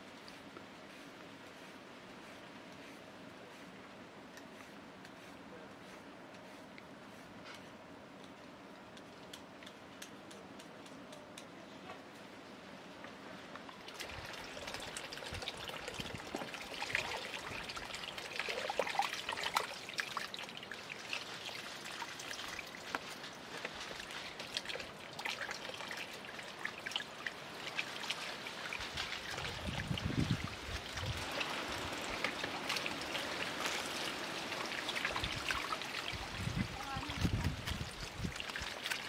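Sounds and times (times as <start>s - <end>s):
water trickling and splashing: 13.0s - 39.0s
water dripping: 13.5s - 39.0s.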